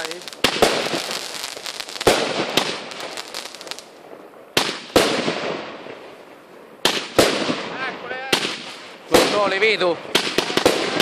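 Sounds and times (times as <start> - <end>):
firework shells bursting: 0.0 - 5.8
firework crackling tail: 0.0 - 11.0.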